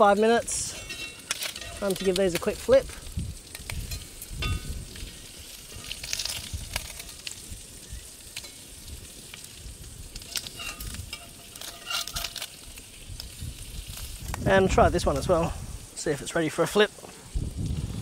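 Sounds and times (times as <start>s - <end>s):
bacon sizzling in frying pan: 0.0s - 18.0s
metal tongs scraping pan: 0.5s - 2.5s, 10.2s - 12.7s.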